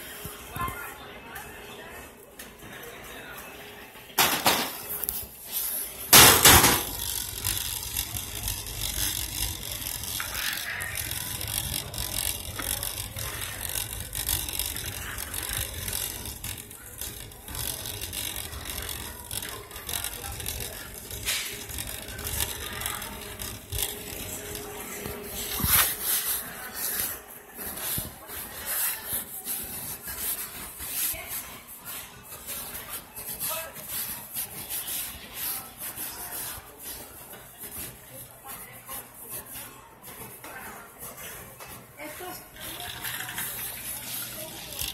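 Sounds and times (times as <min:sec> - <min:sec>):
shopping cart basket rattling: 0:05.5 - 0:38.0, 0:41.9 - 0:44.9
cart wheels rumbling: 0:06.1 - 0:25.6.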